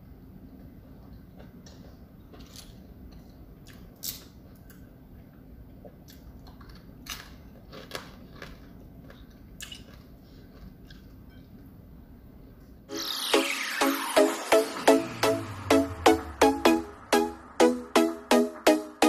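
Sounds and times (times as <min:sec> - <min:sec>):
food crunching while chewed: 0:01.3 - 0:04.9, 0:05.8 - 0:11.6.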